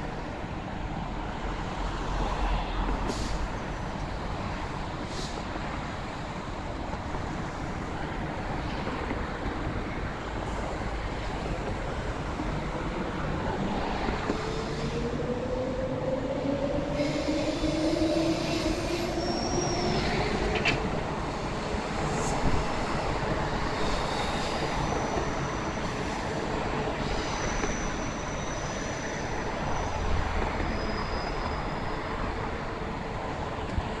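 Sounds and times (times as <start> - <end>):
electric train rumbling past: 0.0 - 34.0.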